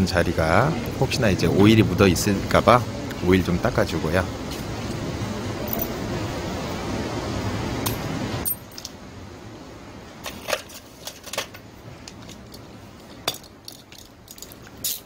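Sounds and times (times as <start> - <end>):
metal tools clinking on workbench: 7.8 - 8.9, 10.2 - 12.5.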